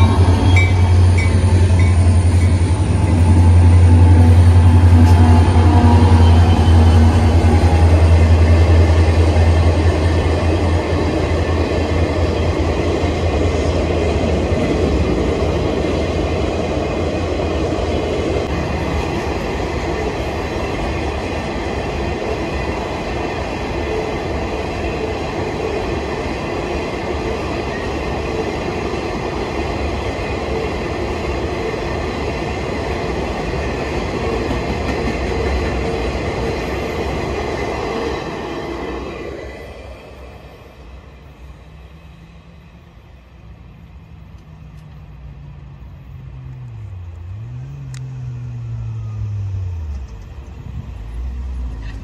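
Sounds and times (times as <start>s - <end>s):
freight train rolling past: 0.0s - 52.0s
wheels clattering on rail: 18.4s - 38.2s.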